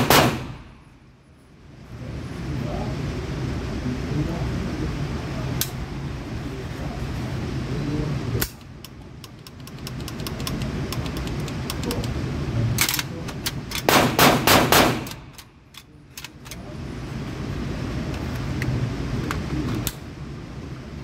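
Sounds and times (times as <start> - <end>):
gunshots: 0.0 - 0.7, 13.8 - 15.2.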